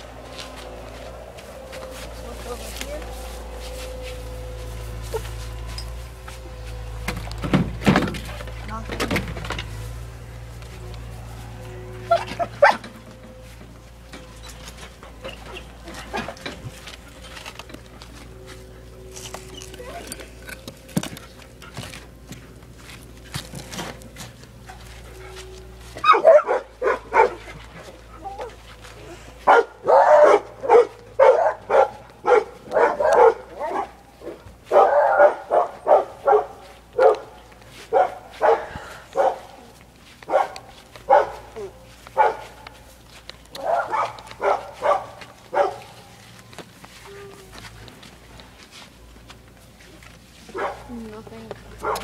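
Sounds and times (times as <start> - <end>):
dog barking: 26.0 - 27.4, 29.4 - 39.5, 40.3 - 42.6, 43.6 - 45.9, 50.5 - 50.9, 51.8 - 52.0.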